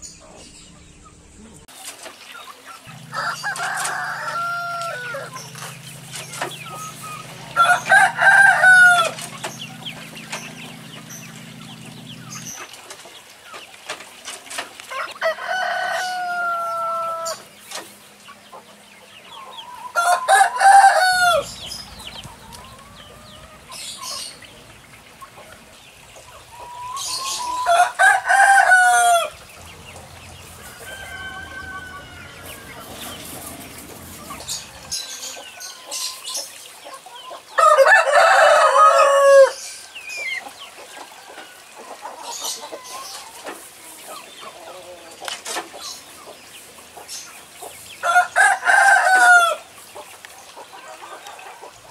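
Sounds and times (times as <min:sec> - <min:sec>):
roosters crowing: 0:02.8 - 0:12.6, 0:14.5 - 0:17.7, 0:19.3 - 0:36.5, 0:37.3 - 0:46.1, 0:47.9 - 0:49.9.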